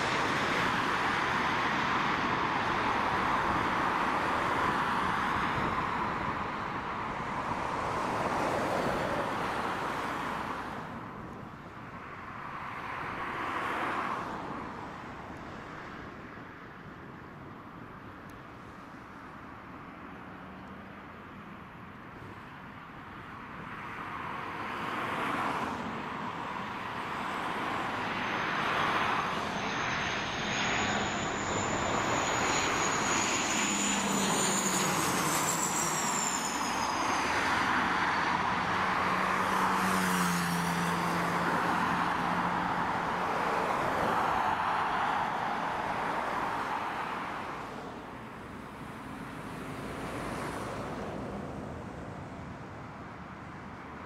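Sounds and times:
turboprop aircraft passing overhead: 0.0 - 10.3, 26.1 - 53.6
high engine whine: 0.0 - 12.4, 25.7 - 54.0.

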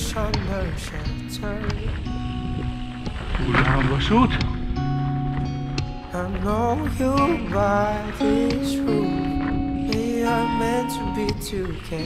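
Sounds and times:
slow song with singing: 0.0 - 2.8, 5.8 - 12.0.

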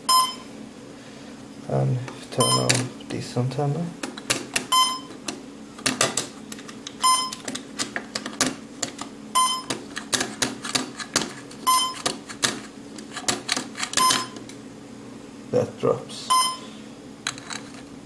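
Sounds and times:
short electronic beep: 0.1 - 0.5, 16.3 - 16.7.

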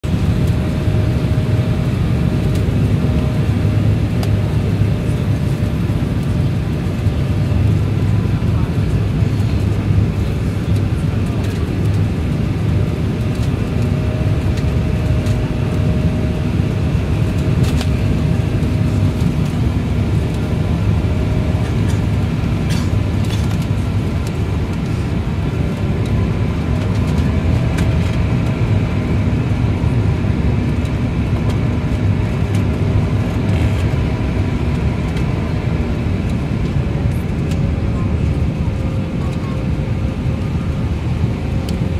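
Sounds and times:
faint engine whine: 0.0 - 41.9
jet engine roar and rushing air: 0.0 - 41.9.

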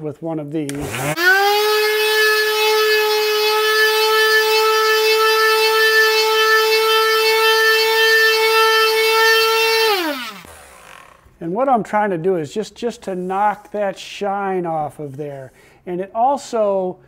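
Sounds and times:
electric sander whining: 0.7 - 11.4.

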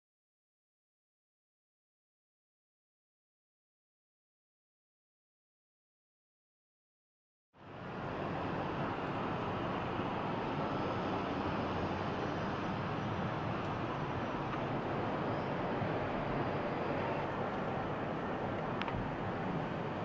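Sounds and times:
outdoor ambient noise: 7.6 - 20.0.

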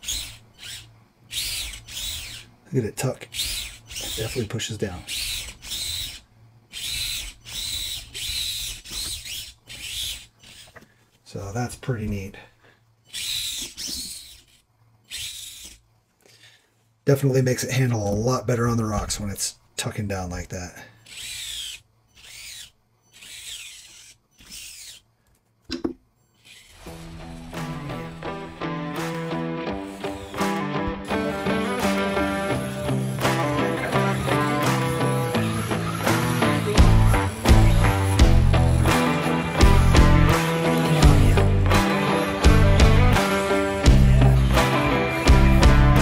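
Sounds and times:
toy truck motor whining: 0.0 - 10.9, 13.0 - 15.9, 21.0 - 25.4, 26.3 - 46.0
music: 26.9 - 46.0.

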